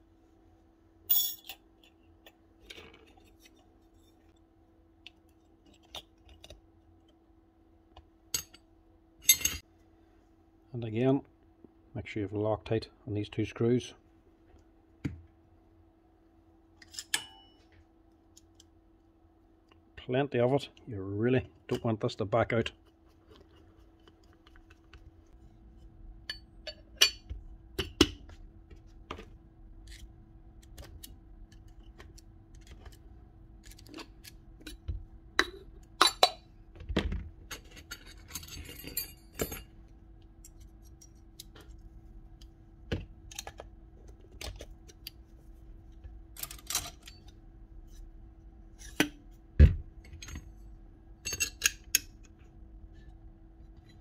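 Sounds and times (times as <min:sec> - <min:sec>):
faint steady hum: 0:00.0 - 0:54.0
metal tools clinking: 0:01.1 - 0:01.6, 0:37.7 - 0:39.7.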